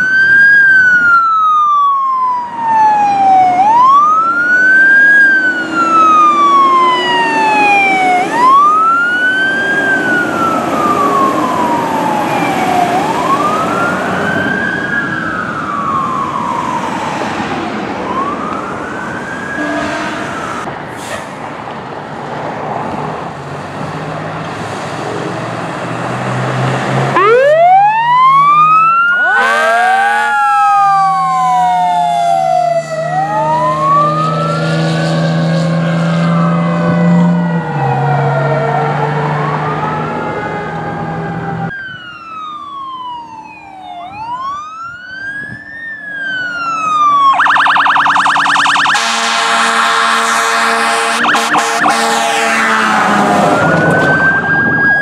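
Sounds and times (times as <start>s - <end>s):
fire truck sirens wailing: 0.0s - 21.5s, 22.9s - 55.0s
horn blast: 19.5s - 20.6s, 29.2s - 30.4s, 48.7s - 53.6s.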